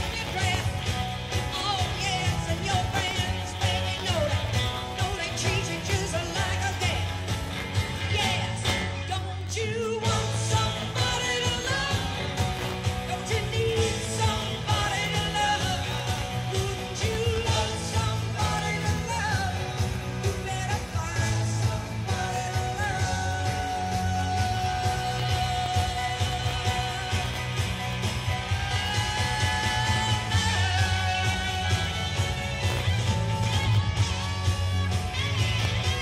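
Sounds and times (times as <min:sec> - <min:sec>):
woman singing: 0:00.0 - 0:07.1, 0:08.0 - 0:27.7
live rock band playing: 0:00.0 - 0:36.0.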